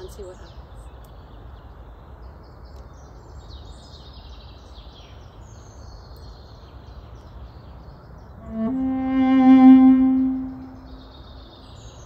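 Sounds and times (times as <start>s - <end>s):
songbirds singing and chirping: 0.0s - 8.7s.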